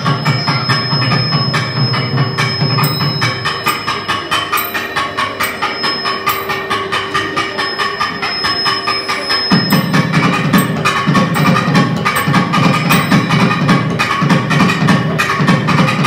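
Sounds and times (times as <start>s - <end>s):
steady held tone: 0.0s - 14.1s
barrel drum strokes: 2.0s - 7.1s, 9.6s - 15.6s.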